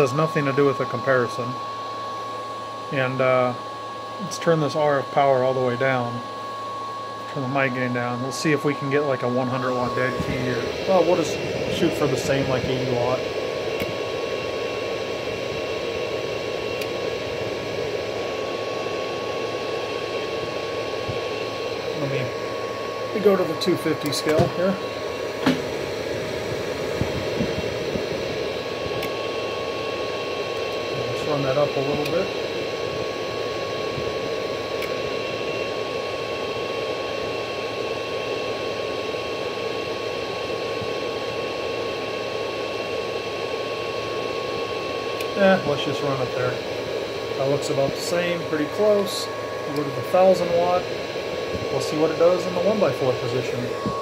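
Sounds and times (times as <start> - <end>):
thin steady whine: 0.0 - 54.0
amplifier hiss: 7.3 - 36.2, 43.5 - 54.0
fan-like rushing noise: 8.0 - 35.4.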